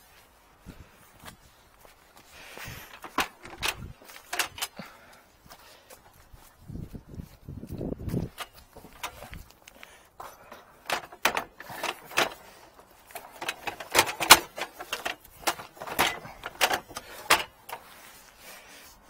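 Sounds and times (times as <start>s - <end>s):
metal gear clanking and rattling: 2.9s - 4.8s, 8.1s - 9.4s, 10.4s - 18.0s.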